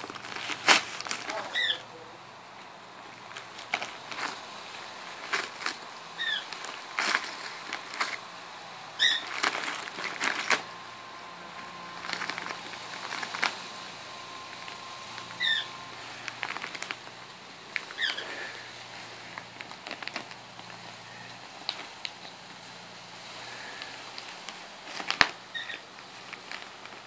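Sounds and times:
wrapping paper crinkling and tearing: 0.0s - 1.8s, 3.1s - 10.8s, 11.4s - 27.0s
short high squeaks: 9.0s - 9.4s, 25.5s - 25.8s.

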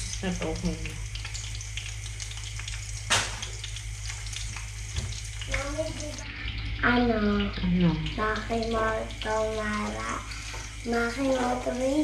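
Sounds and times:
food sizzling in hot oil: 0.0s - 12.0s
sharp crack: 3.1s - 3.6s.

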